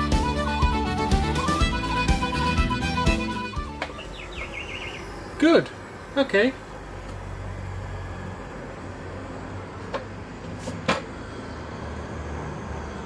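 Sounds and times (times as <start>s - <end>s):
steady low hum: 3.9s - 13.0s.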